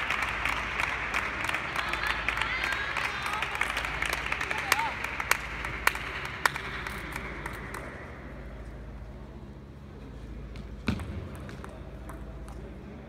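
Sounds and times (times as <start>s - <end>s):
scattered clapping: 0.0s - 8.1s
ping pong ball taps: 10.9s - 12.6s.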